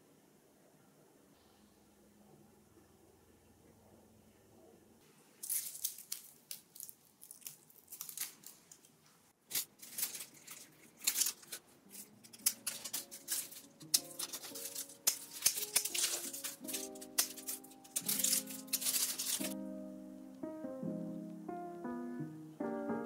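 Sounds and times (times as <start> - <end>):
dry leaves and stems crackling: 5.4 - 8.9, 9.5 - 19.6
pruning shears snipping: 9.5 - 19.6
soft music: 11.8 - 23.0.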